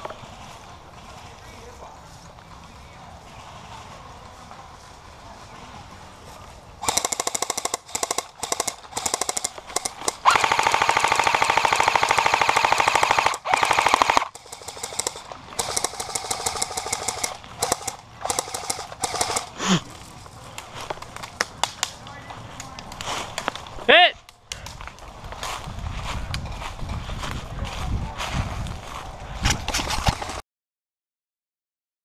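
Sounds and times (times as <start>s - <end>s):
airsoft guns firing bursts: 6.8s - 19.6s.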